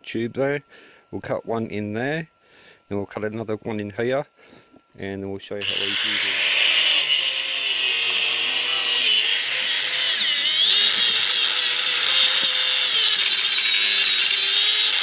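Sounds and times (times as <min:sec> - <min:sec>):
angle grinder cutting rubber: 0:05.6 - 0:15.0.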